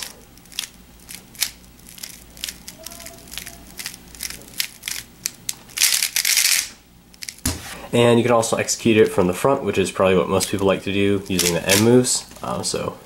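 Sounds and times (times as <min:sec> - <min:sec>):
puzzle cube plastic clicks: 0:00.4 - 0:07.4.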